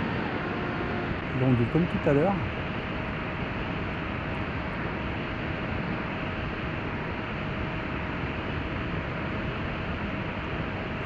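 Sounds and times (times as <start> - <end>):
electric motor whine: 0.0 - 1.5
wind and propeller rush: 0.0 - 11.0.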